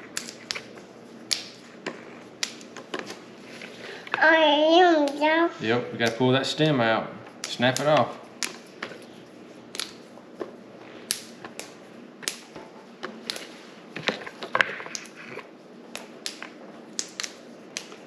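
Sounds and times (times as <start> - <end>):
green beans snapping: 0.1 - 1.6, 7.4 - 8.6, 9.7 - 10.0, 15.9 - 18.0.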